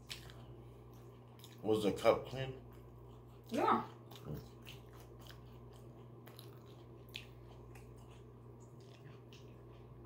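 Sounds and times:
steady low hum: 0.0 - 10.0
wet chewing clicks: 0.0 - 10.0.

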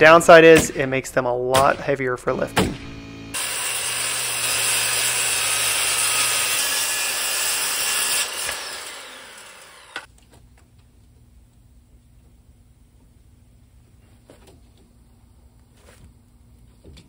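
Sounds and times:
circular saw cutting board: 2.2 - 10.1.

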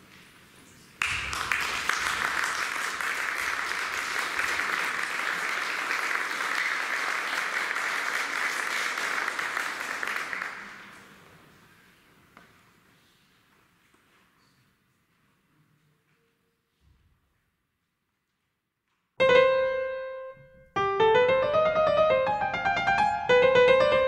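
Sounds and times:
audience applauding: 1.0 - 11.4.

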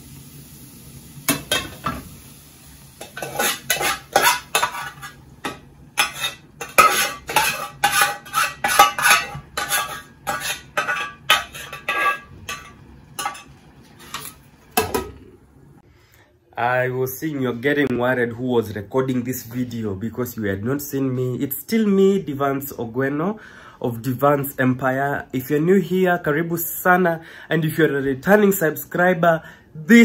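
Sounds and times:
metal spoon scraping cooking pot: 3.0 - 14.4.

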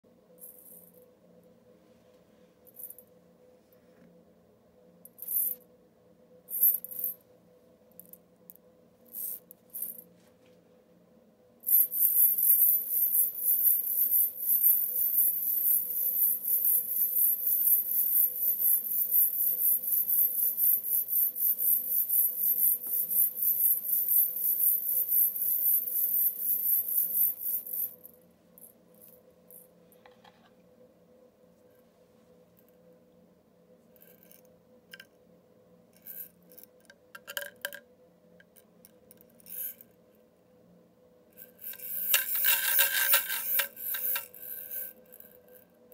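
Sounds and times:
shaker shaken by hand: 41.8 - 44.3.

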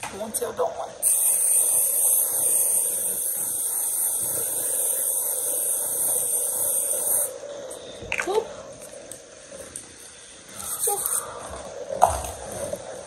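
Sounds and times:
spray misting hiss: 1.0 - 7.3.

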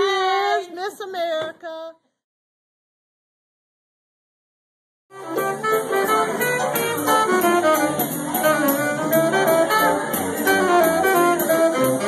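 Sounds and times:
big band jazz: 5.1 - 12.0.

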